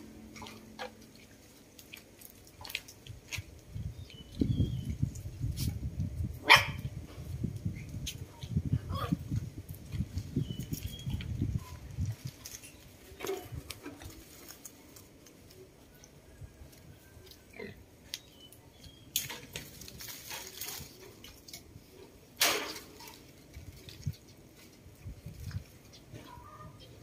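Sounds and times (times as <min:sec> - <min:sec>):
leaves and twigs rustling: 0:07.0 - 0:27.0.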